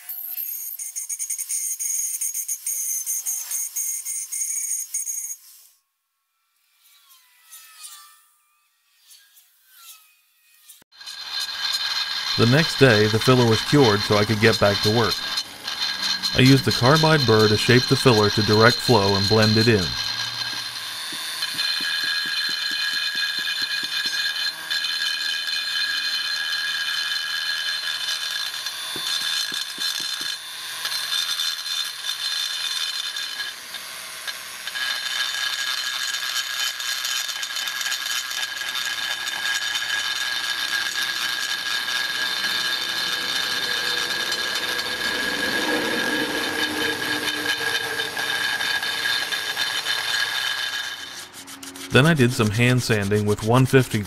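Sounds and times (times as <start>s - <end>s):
rotary tool grinding whine: 0.0s - 5.8s, 6.5s - 53.4s.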